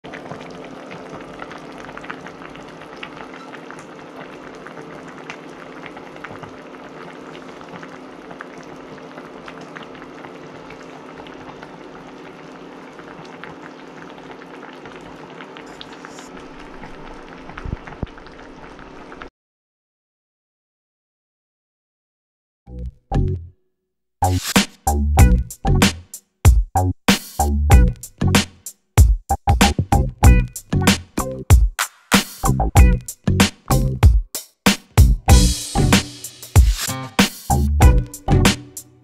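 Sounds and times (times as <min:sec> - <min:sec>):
broth bubbling in a pot: 0:00.1 - 0:19.3
low hum: 0:35.3 - 0:36.2.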